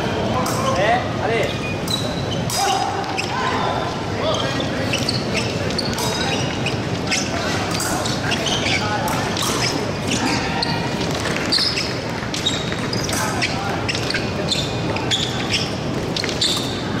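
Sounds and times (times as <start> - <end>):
shoe squeaks and thuds: 4.3 - 17.0.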